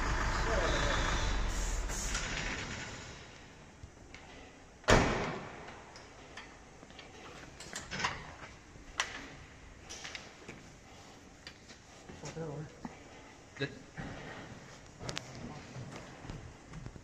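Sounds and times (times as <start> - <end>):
loud bang: 4.9 - 5.6.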